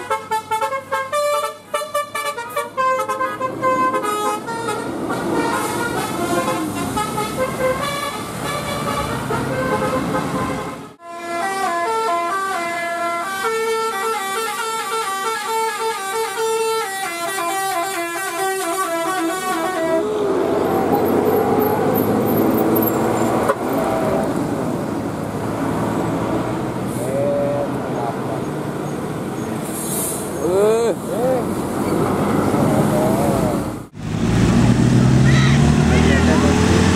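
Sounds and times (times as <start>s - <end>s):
multi-tone bus horn melody: 0.0s - 22.7s
bus engine: 0.0s - 36.9s
passing traffic rumble: 0.0s - 36.9s.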